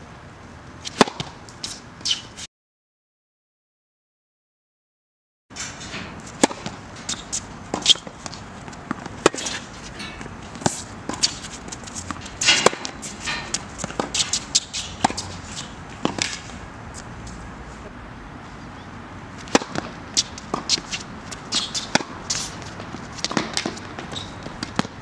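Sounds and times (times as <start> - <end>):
tennis ball bouncing on court: 0.8 - 1.4, 6.3 - 16.6, 19.4 - 25.0
tennis ball struck by rackets: 0.9 - 1.4, 5.6 - 16.6, 19.4 - 25.0.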